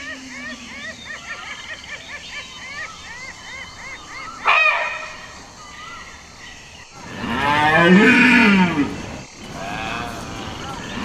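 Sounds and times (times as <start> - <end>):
deer stag roaring: 7.0 - 11.0.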